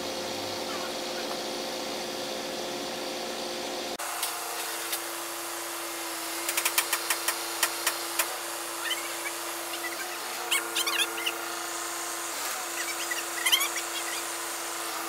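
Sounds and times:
sharp clicks and ticks: 6.5 - 8.3.

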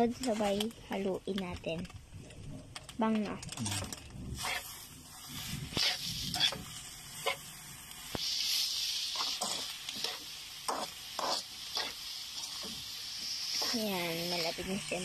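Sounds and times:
steady sizzle: 0.0 - 15.0
spatula scraping wok: 3.6 - 15.0.

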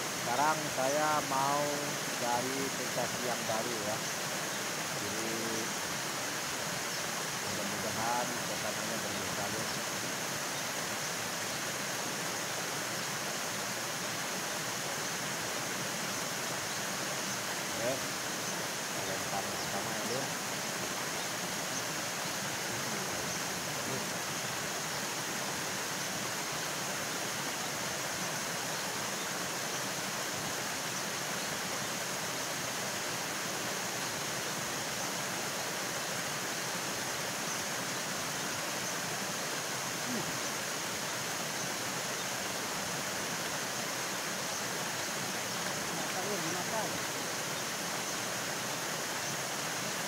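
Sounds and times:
small waterfall rushing: 0.0 - 50.0.

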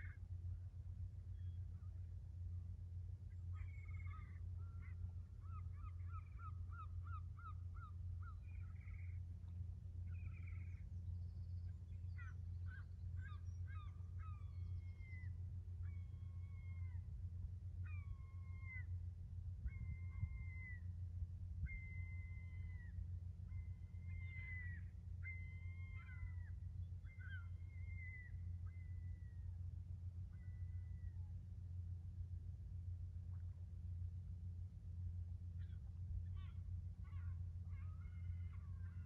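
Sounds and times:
steady low drone: 0.0 - 39.0
seagulls calling: 3.3 - 17.1, 17.8 - 18.9, 19.6 - 20.9, 21.6 - 29.3, 35.6 - 39.0.

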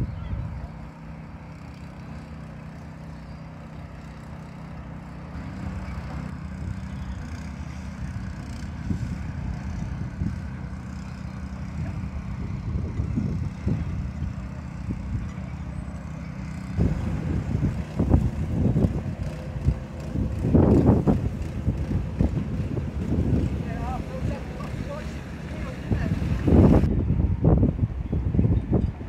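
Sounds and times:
low engine hum: 0.0 - 29.0
wind gusting on microphone: 6.4 - 15.4, 16.3 - 29.0.

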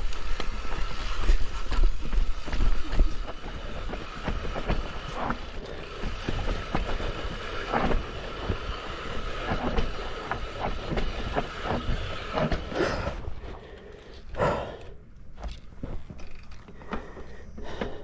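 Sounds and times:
bike knocking and clattering: 0.0 - 13.5, 14.5 - 18.0
bike rolling noise: 0.0 - 18.0.

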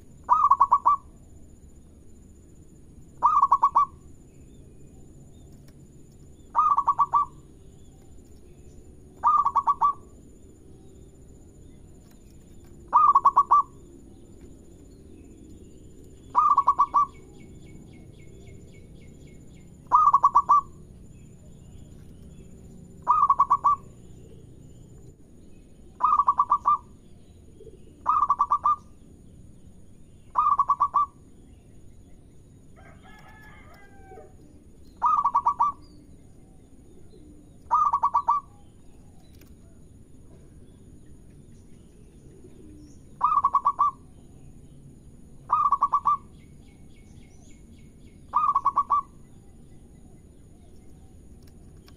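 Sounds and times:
dove cooing in pulsed phrases: 0.0 - 1.4, 3.1 - 4.3, 6.4 - 7.9, 8.9 - 11.3, 12.7 - 24.9, 25.9 - 29.1, 30.3 - 31.4, 32.9 - 40.4, 42.0 - 44.2, 45.4 - 47.4, 48.2 - 51.1
faint bird call: 0.2 - 1.1, 3.2 - 4.0, 6.4 - 8.6, 9.2 - 10.2, 12.9 - 13.9, 16.2 - 18.0, 19.8 - 20.8, 23.0 - 24.4, 26.0 - 29.0, 30.3 - 31.2, 32.8 - 36.0, 37.0 - 40.6, 42.3 - 44.2, 45.5 - 46.5, 48.3 - 49.3.

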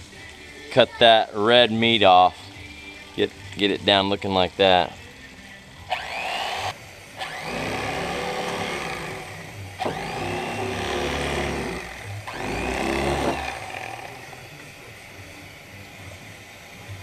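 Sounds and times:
electric fillet knife whining: 2.5 - 17.0.

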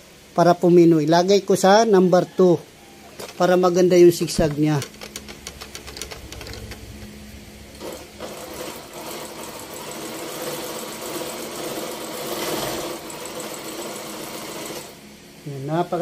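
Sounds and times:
electric sewing machine running: 4.4 - 7.1, 7.7 - 15.0.

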